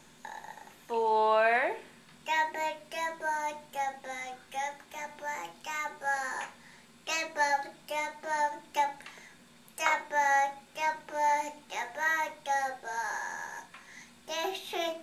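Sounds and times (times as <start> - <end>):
toddler singing wordlessly: 0.2 - 0.7, 2.2 - 9.2, 9.8 - 15.0.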